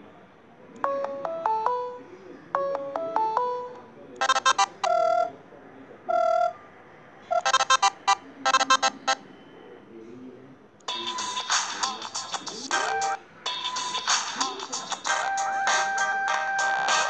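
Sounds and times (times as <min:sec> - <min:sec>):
electronic ringtone phrase: 0:00.8 - 0:02.0, 0:02.6 - 0:05.3, 0:06.1 - 0:06.6, 0:07.3 - 0:09.2, 0:12.7 - 0:14.1, 0:15.1 - 0:17.0
ringtone bleeps and held tones: 0:00.8 - 0:02.0, 0:02.6 - 0:05.3, 0:06.1 - 0:06.6, 0:07.3 - 0:09.3, 0:10.9 - 0:14.3, 0:14.9 - 0:17.0.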